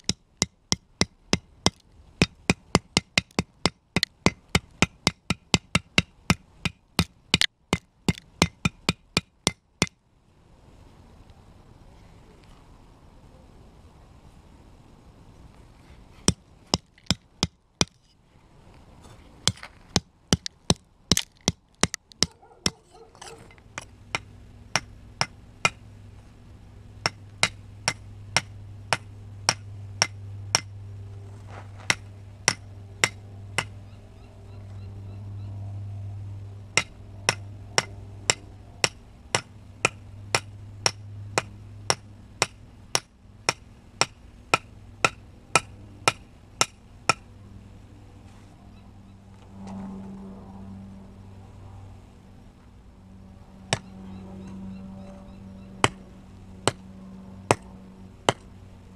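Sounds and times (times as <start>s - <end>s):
knife striking concrete block: 0.0s - 10.0s.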